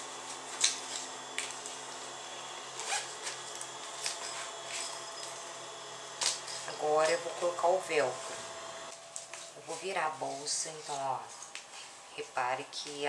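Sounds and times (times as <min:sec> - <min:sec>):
fabric and zipper rustling: 0:02.7 - 0:05.6, 0:06.3 - 0:12.1.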